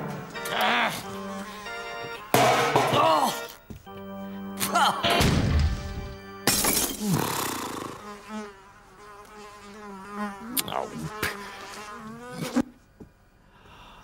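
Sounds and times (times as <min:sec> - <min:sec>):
fly buzzing: 0:00.2 - 0:03.5, 0:06.9 - 0:12.9.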